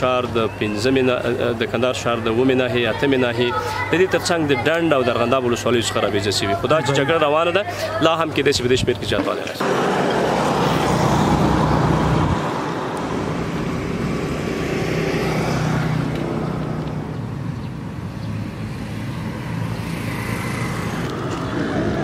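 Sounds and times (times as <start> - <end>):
road traffic noise: 0.0 - 22.0
vehicle engine hum: 9.6 - 22.0.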